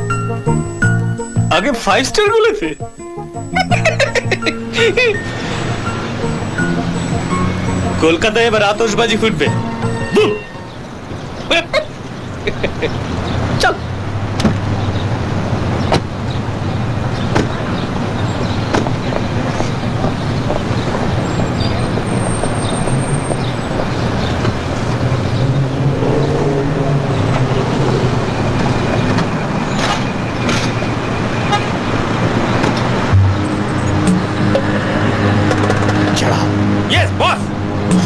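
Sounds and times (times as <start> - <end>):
car and van engines running: 0.0 - 38.0
car horn toot: 8.9 - 11.0, 31.4 - 31.9
car doors shutting: 14.2 - 15.1, 15.7 - 16.4, 17.1 - 25.4, 28.5 - 34.8.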